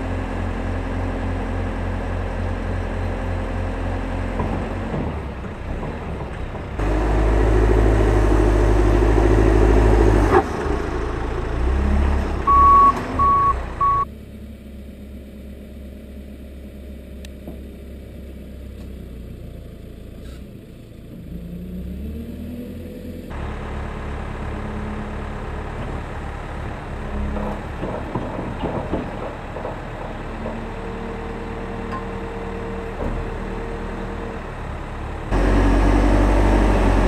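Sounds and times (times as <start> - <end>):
diesel engine running: 0.0 - 37.0
reversing alarm beeps: 12.5 - 14.1.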